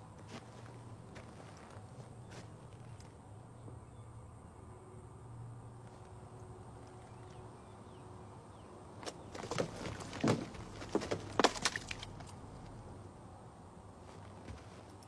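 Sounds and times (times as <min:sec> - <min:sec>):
paper cup falling on dirt: 0:09.0 - 0:12.4.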